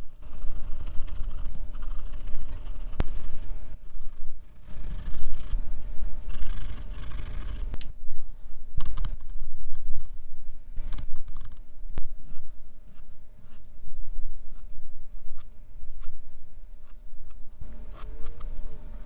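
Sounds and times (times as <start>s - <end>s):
pencil scratching on paper: 0.0s - 5.6s, 6.3s - 7.8s.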